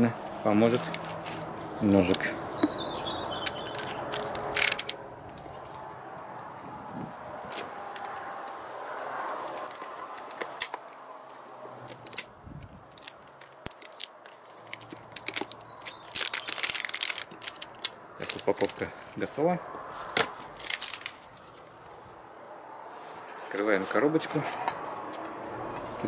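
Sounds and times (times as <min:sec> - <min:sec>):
plastic strip crackling: 0:03.4 - 0:05.8, 0:07.4 - 0:19.2, 0:20.1 - 0:21.8.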